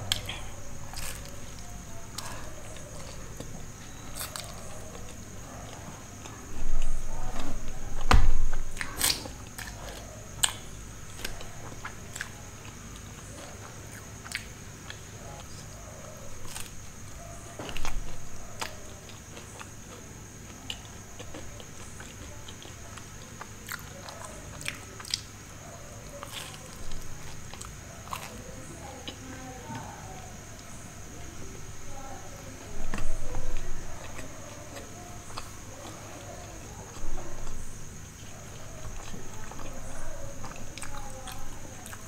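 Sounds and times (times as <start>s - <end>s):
biting into pizza: 0.0s - 29.3s
chewing pizza: 0.0s - 42.0s.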